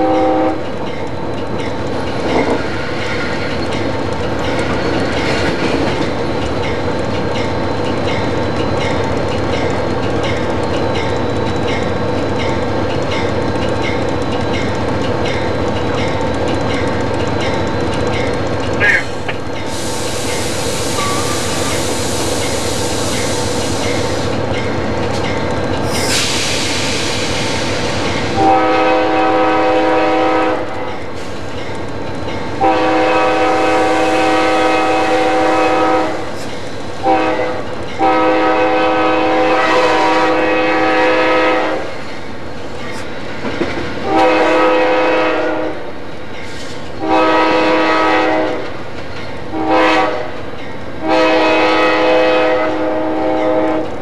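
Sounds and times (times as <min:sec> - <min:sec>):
locomotive air horn blasts: 0:00.0 - 0:00.6, 0:28.3 - 0:30.7, 0:32.6 - 0:36.3, 0:37.0 - 0:41.9, 0:44.0 - 0:45.8, 0:47.0 - 0:48.6, 0:49.5 - 0:50.3, 0:51.0 - 0:53.9
wheels clacking on rail: 0:00.0 - 0:54.0
loud hiss: 0:18.9 - 0:24.3, 0:25.9 - 0:28.4.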